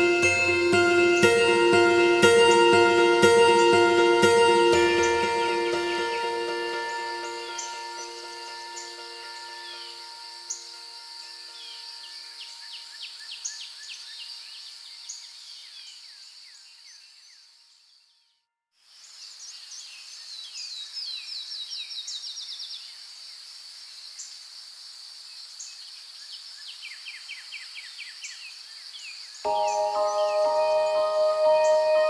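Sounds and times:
insects droning: 6.0 - 13.3.

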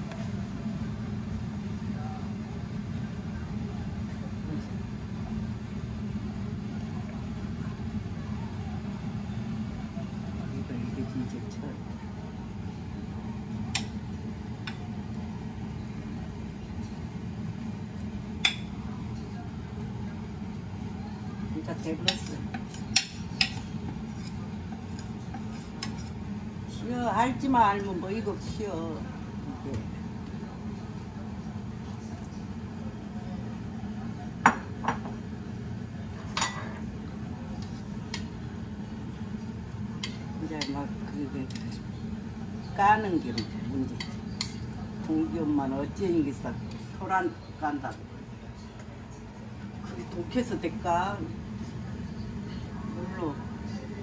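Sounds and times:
steady low hum: 0.0 - 54.0
metal utensils clinking on pot: 36.4 - 36.8.

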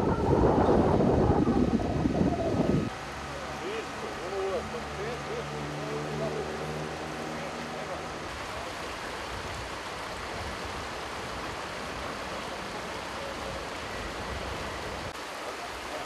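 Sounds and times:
river rushing over stones: 0.0 - 16.0.

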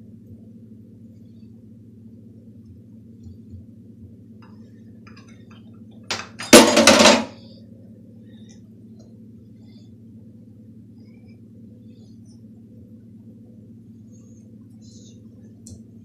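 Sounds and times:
faint low hum: 0.0 - 16.0
utensils clattering on a plate: 6.1 - 7.4.

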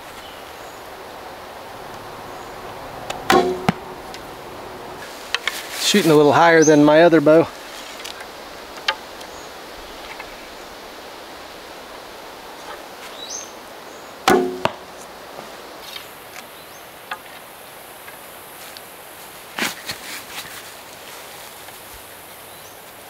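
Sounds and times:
bowstring twang: 3.0 - 4.2, 14.3 - 15.0
arrow knocking into target: 3.2 - 3.9, 14.3 - 14.9.

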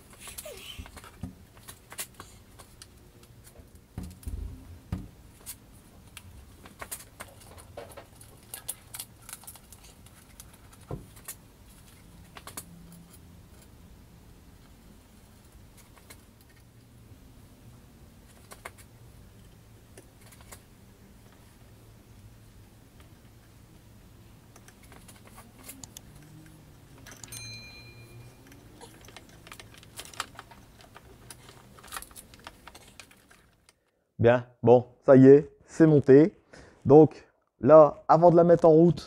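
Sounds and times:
small metal parts clicking and rattling: 5.4 - 13.8, 24.6 - 33.9.

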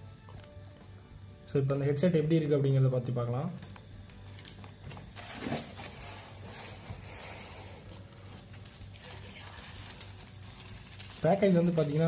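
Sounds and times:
bubble wrap crinkling: 3.0 - 12.0.

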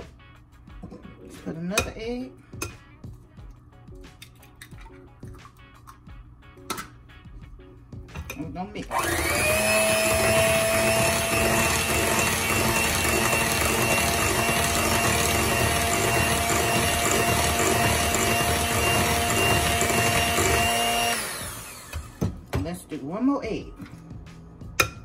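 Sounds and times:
electric hand mixer running: 8.8 - 22.4.

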